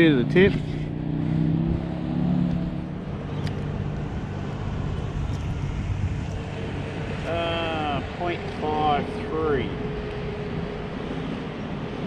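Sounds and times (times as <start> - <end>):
small click: 3.4 - 3.6.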